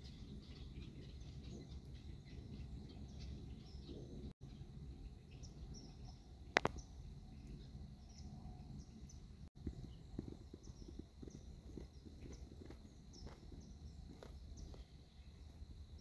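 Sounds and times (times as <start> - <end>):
faint bird chirps: 0.0 - 16.0
steady low rumble: 0.0 - 16.0
sharp click: 6.5 - 6.8.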